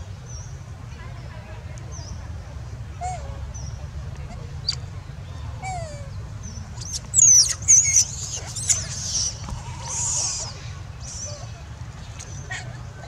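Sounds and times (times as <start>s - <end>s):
monkey shrill squeals: 6.8s - 11.5s.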